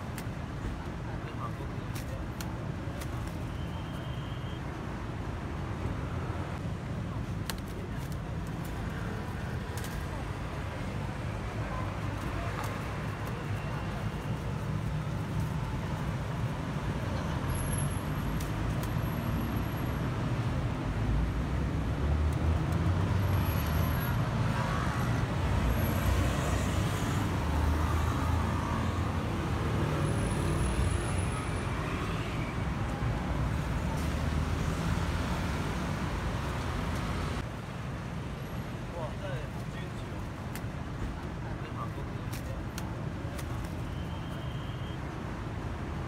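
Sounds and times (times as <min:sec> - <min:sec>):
rumble of passing cars: 0:00.0 - 0:46.0.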